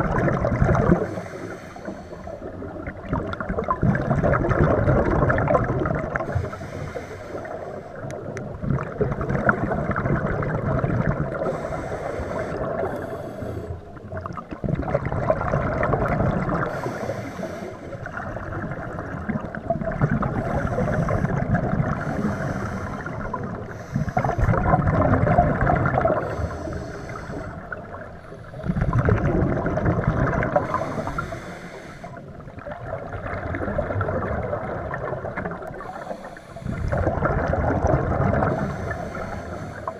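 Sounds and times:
exhaled bubbles rumbling: 0:00.0 - 0:39.9
regulator inhalation hiss: 0:01.1 - 0:02.5, 0:11.5 - 0:13.8, 0:16.7 - 0:17.9, 0:22.0 - 0:24.4, 0:26.2 - 0:27.7, 0:30.6 - 0:32.3, 0:35.8 - 0:37.0, 0:38.6 - 0:39.9.

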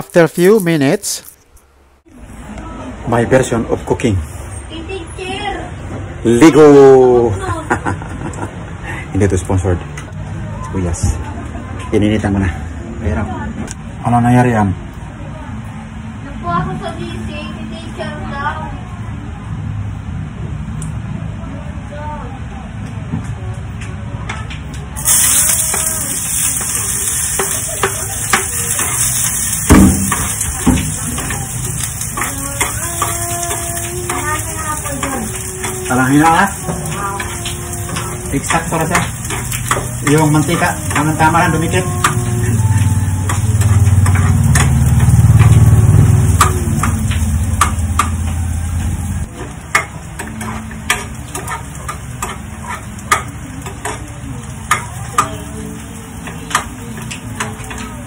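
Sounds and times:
food sizzling in oil: 0:25.0 - 0:58.0
spatula scraping in pan: 0:25.1 - 0:46.9, 0:49.8 - 0:54.0
loud low hum: 0:36.5 - 0:49.3.

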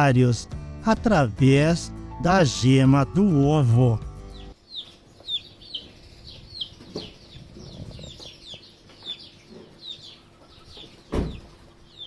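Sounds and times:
chicks peeping: 0:04.3 - 0:12.0.

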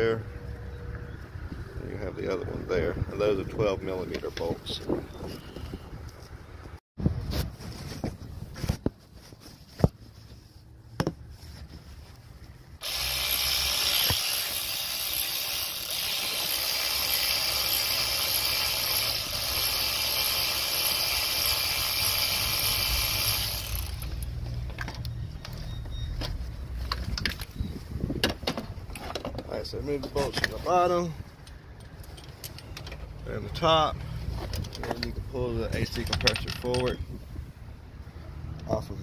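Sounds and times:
cordless power tool running: 0:12.8 - 0:24.2.

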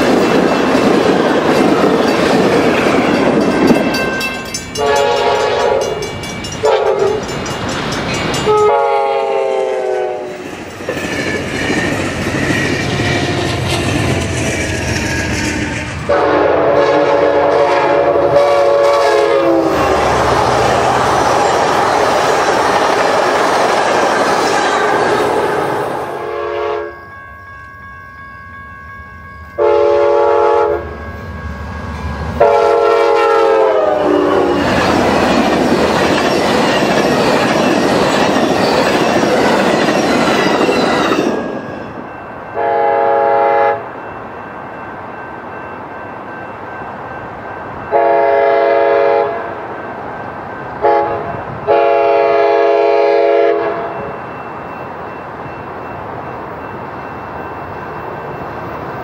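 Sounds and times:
train cars clickety-clack: 0:00.0 - 0:26.3, 0:31.8 - 0:43.8
diesel trains passing: 0:00.0 - 0:59.0
train air horn blasts: 0:04.8 - 0:06.0, 0:06.6 - 0:07.2, 0:08.5 - 0:10.4, 0:15.6 - 0:20.0, 0:25.6 - 0:27.0, 0:29.5 - 0:31.0, 0:32.4 - 0:34.6, 0:42.6 - 0:43.9, 0:47.9 - 0:49.6, 0:50.8 - 0:54.0.

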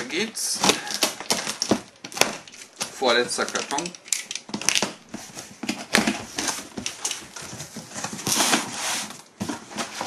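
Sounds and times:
box cutter scraping cardboard: 0:08.0 - 0:10.0.

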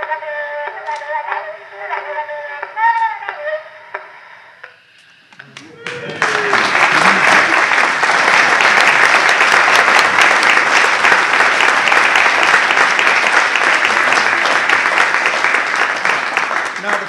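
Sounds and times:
audience applauding: 0:05.4 - 0:17.0.

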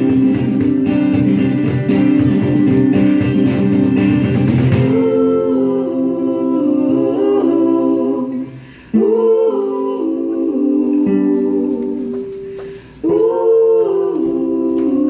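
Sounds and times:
women singing harmony a cappella: 0:00.0 - 0:00.6, 0:04.7 - 0:15.0
acoustic guitar strumming: 0:00.0 - 0:07.6.

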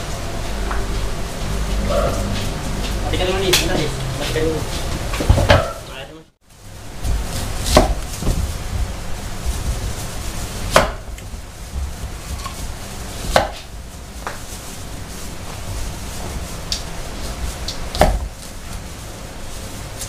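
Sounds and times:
knife striking wooden board: 0:18.0 - 0:18.3.

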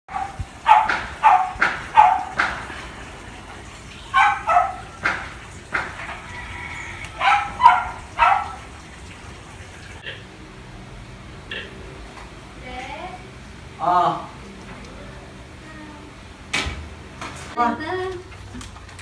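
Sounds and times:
dog barking: 0:00.1 - 0:02.6, 0:04.1 - 0:05.2, 0:07.1 - 0:08.7.

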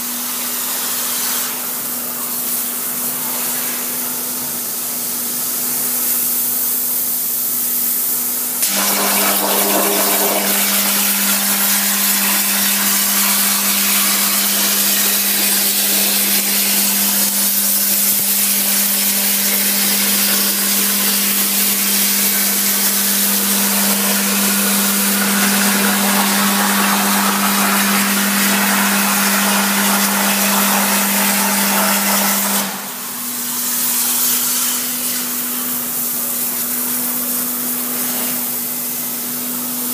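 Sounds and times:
plasma cutter arc hissing: 0:00.1 - 0:09.4, 0:10.1 - 0:39.8
machine hum: 0:07.8 - 0:34.0.

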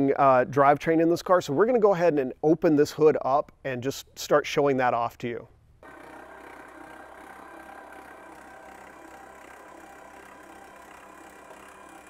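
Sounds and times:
mechanical hum: 0:05.4 - 0:12.0.

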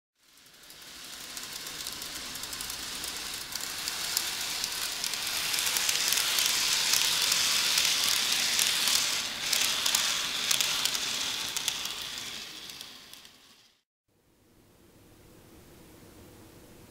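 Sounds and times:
model train rolling hiss: 0:00.2 - 0:13.8
wheels clicking: 0:00.2 - 0:13.8.

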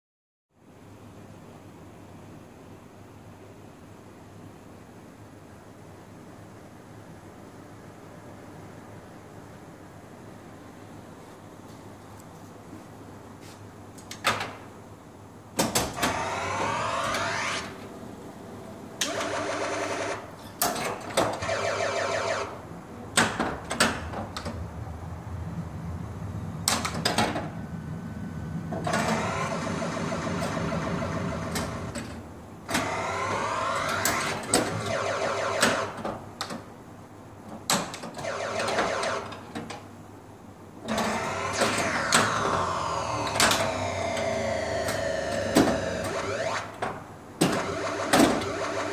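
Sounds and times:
pinball mechanism clicks and knocks: 0:15.6 - 0:17.5
electronic sweeping tones: 0:27.8 - 0:31.9, 0:41.0 - 0:46.8, 0:47.6 - 0:48.9.

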